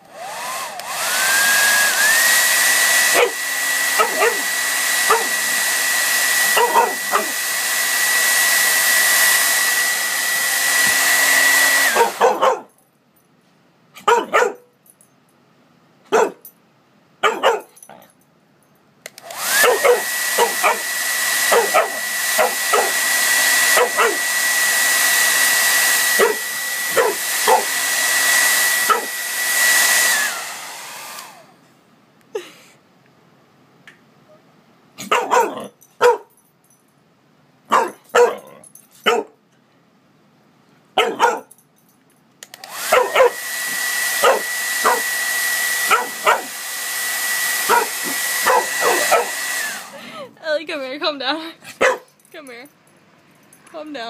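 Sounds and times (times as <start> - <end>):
hair dryer blowing: 0.0 - 12.4, 19.1 - 31.6, 42.4 - 51.2
dog barking: 3.1 - 3.4, 4.0 - 5.4, 6.5 - 7.4, 12.0 - 12.7, 14.0 - 14.7, 16.1 - 16.5, 17.2 - 18.0, 19.6 - 20.8, 21.5 - 23.0, 23.7 - 24.2, 26.2 - 27.7, 28.9 - 29.1, 35.0 - 36.4, 37.7 - 39.4, 41.0 - 41.5, 42.9 - 43.4, 44.2 - 45.0, 45.9 - 46.5, 47.7 - 49.4, 51.8 - 52.1.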